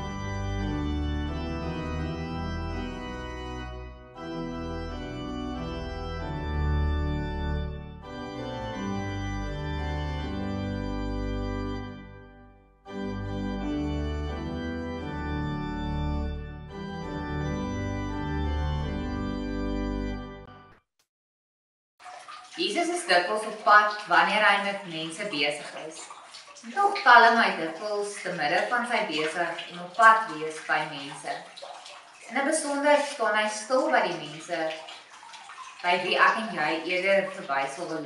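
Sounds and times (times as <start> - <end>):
organ playing sustained chords: 0.0 - 20.5.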